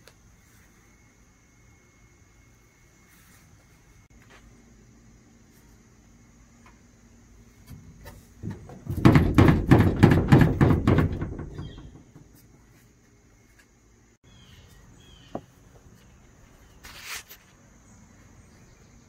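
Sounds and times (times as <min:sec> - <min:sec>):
wooden board knocking on metal hull: 0:07.7 - 0:12.6.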